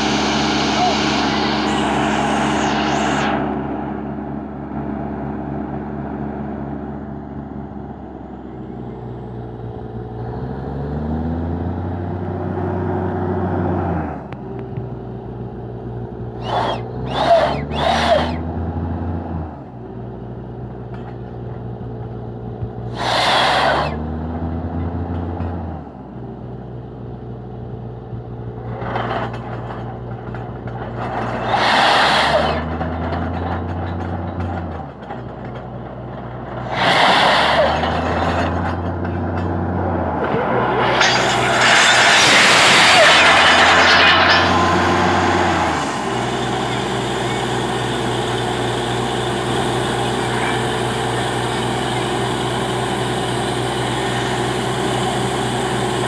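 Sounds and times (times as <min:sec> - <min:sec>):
air hissing: 0:00.0 - 0:03.5, 0:22.9 - 0:24.0
drilling rig engine: 0:00.0 - 0:14.3, 0:15.7 - 0:19.7, 0:22.7 - 0:25.7, 0:28.6 - 0:56.0.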